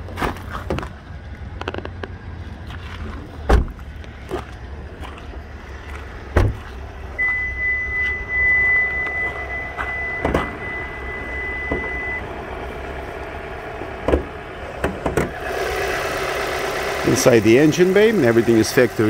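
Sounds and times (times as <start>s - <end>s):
low steady rumble: 0.0s - 19.0s
car door shutting: 3.5s - 3.8s, 6.3s - 7.4s, 9.0s - 10.8s, 11.4s - 12.2s, 14.0s - 15.4s
steady high beep: 7.2s - 12.3s.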